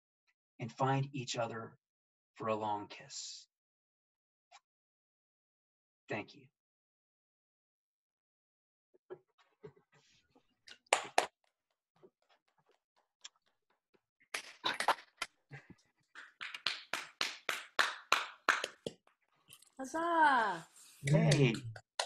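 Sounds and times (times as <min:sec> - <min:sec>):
people clapping: 0:10.7 - 0:11.3, 0:14.3 - 0:19.0, 0:19.8 - 0:22.0.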